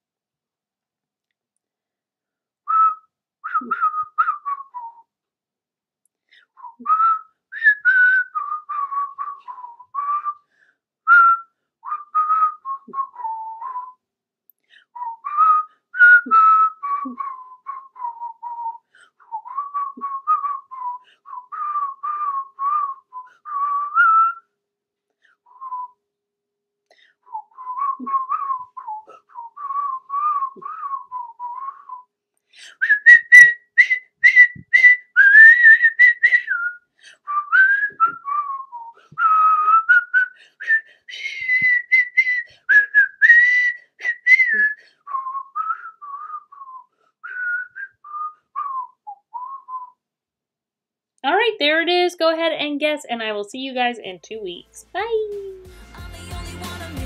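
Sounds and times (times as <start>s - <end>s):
woman whistling a melody: 2.7s - 5.1s, 6.4s - 10.5s, 11.1s - 14.0s, 14.8s - 24.5s, 25.5s - 26.0s, 27.2s - 50.0s.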